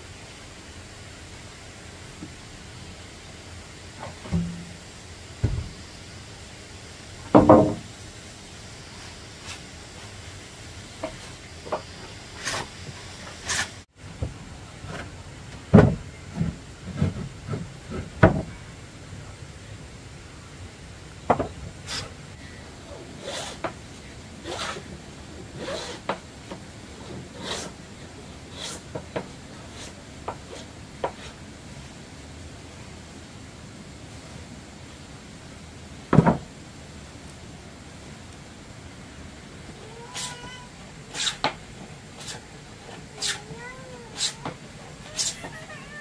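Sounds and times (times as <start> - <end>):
heavy wooden thumps: 4.0 - 5.8, 7.3 - 7.9, 15.7 - 18.6, 36.1 - 36.5
short strokes on timber: 11.0 - 13.9, 22.9 - 23.8, 24.4 - 27.8, 28.4 - 31.5, 39.8 - 45.8.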